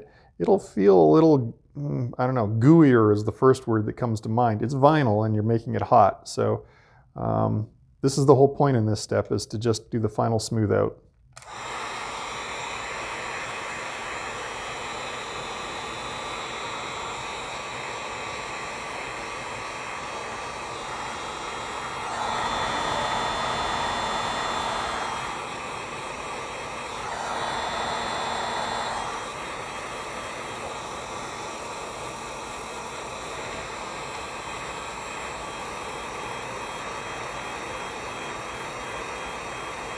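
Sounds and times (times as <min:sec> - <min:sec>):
heat gun blowing with whine: 0:11.4 - 0:39.9.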